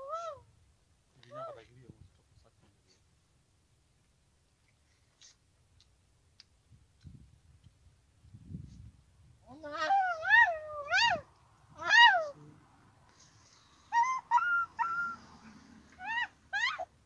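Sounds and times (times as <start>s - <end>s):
person squealing falsetto cries: 9.5s - 11.2s, 13.9s - 15.2s, 16.0s - 16.9s.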